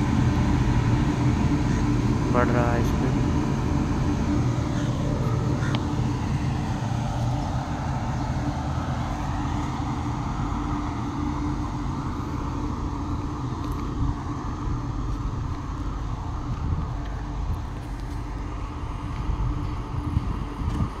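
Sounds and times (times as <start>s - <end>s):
locomotive rumbling along track: 0.0s - 21.0s.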